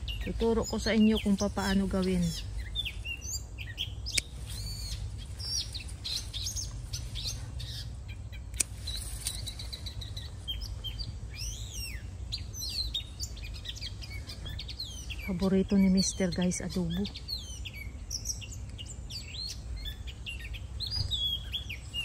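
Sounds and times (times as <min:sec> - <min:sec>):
small birds chirping: 0:00.0 - 0:22.0
scissors snipping: 0:08.5 - 0:09.4.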